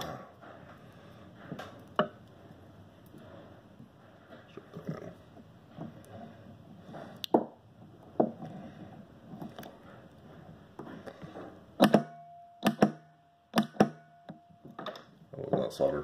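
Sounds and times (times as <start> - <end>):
faint steady tone: 10.8 - 15.0.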